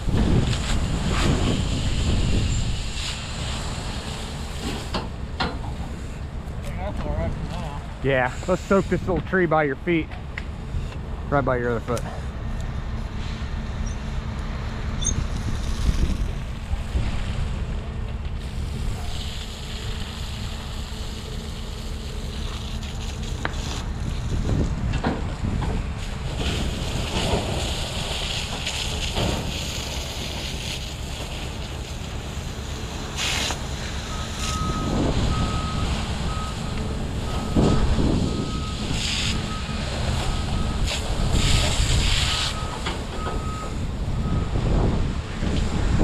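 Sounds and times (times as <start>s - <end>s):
fire hose spraying water: 0.0s - 46.0s.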